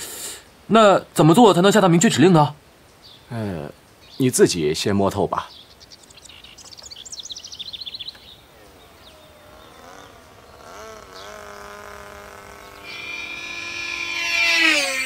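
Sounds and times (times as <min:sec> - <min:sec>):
high falling chirps: 0:06.0 - 0:15.0
model plane motor buzzing: 0:09.2 - 0:15.0.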